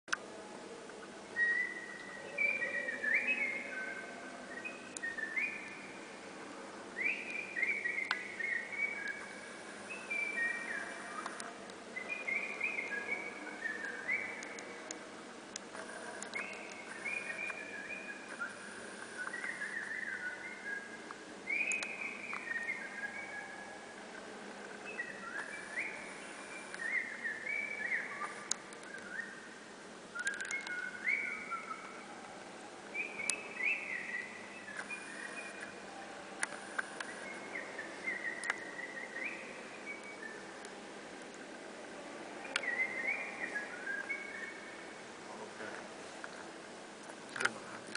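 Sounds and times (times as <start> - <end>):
person whistling birdsong: 1.4 - 3.9, 16.3 - 23.6, 30.2 - 31.9.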